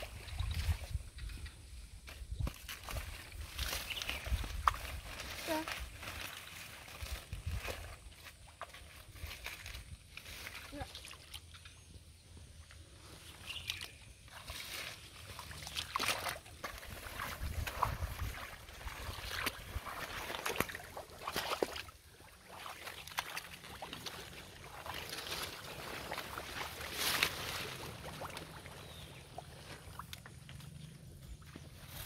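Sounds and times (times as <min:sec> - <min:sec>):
water splashing and sloshing: 0:00.0 - 0:12.0, 0:12.6 - 0:32.0
plants rustling: 0:02.1 - 0:11.4, 0:12.8 - 0:32.0.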